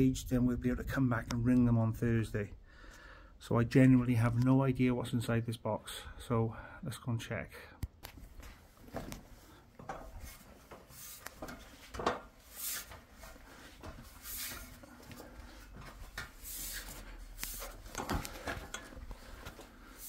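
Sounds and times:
scuffing and rustling: 0:08.2 - 0:20.0
knocks and clanks on metal ladder: 0:09.8 - 0:12.4.

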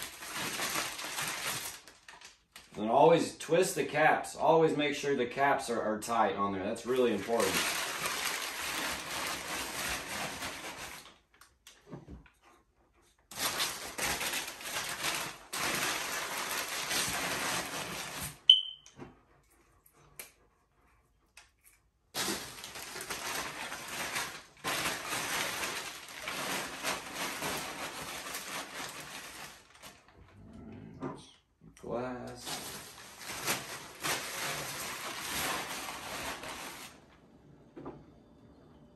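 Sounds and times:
paper crumpling and rustling: 0:00.0 - 0:02.8, 0:06.8 - 0:11.6, 0:13.3 - 0:18.5, 0:22.2 - 0:30.1, 0:32.4 - 0:37.0
glass clink: 0:18.5 - 0:18.8.

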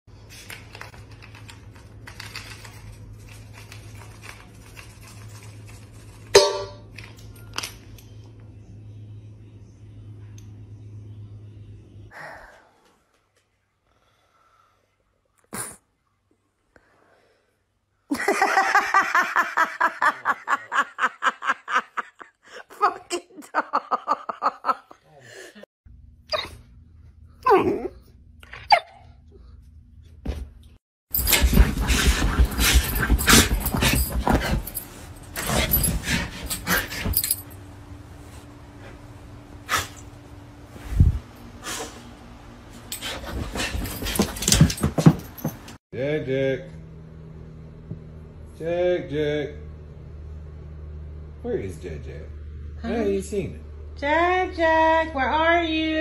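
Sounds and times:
metal bowl clanging: 0:06.4 - 0:06.9
person laughing hard: 0:18.1 - 0:25.0.

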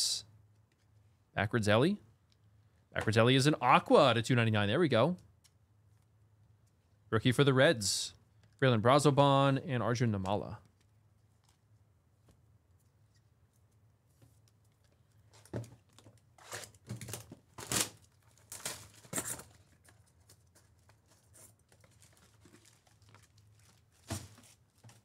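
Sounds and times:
card packs handling: 0:15.2 - 0:25.0
plastic packaging rustling and tearing: 0:15.3 - 0:25.0.

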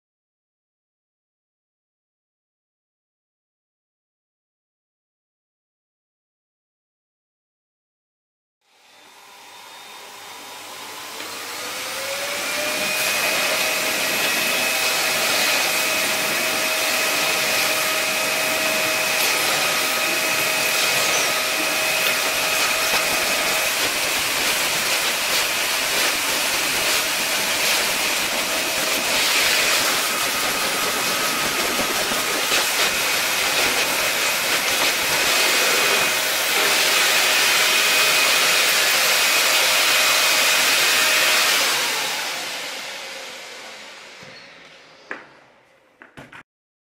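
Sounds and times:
vacuum cleaner whining: 0:08.6 - 0:45.7.

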